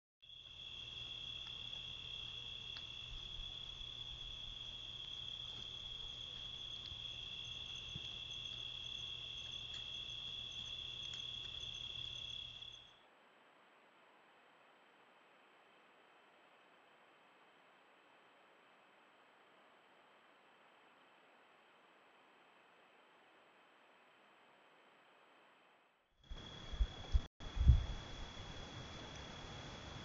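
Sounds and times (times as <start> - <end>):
crickets trilling: 0.2 - 13.0, 26.3 - 30.0.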